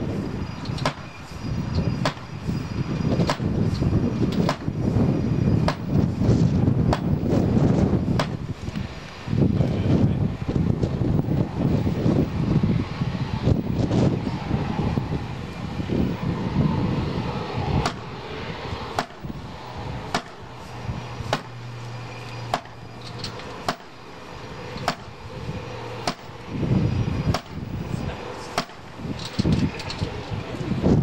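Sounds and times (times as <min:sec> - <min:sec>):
low background rumble: 0:00.0 - 0:31.0
sledgehammer striking plastic: 0:00.8 - 0:01.1, 0:02.0 - 0:02.3, 0:03.2 - 0:03.6, 0:04.3 - 0:04.8, 0:05.6 - 0:06.1, 0:06.9 - 0:07.2, 0:08.2 - 0:08.4, 0:17.8 - 0:18.1, 0:19.0 - 0:19.3, 0:20.1 - 0:20.4, 0:21.3 - 0:21.6, 0:22.5 - 0:24.0, 0:24.8 - 0:25.2, 0:26.0 - 0:26.3, 0:27.3 - 0:27.6, 0:28.5 - 0:28.9.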